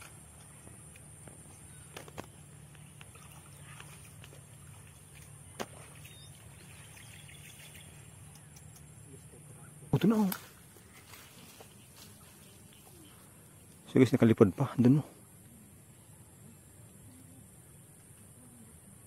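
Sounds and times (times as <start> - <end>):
faint steady background noise: 0.0 - 19.0
faint sharp clicks: 8.2 - 8.9.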